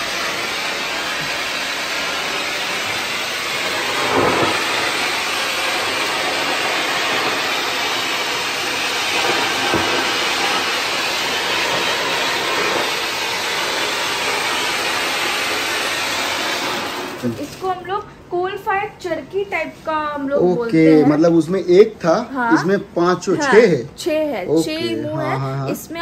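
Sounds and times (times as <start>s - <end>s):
rushing spray of sparks: 0.0s - 17.8s.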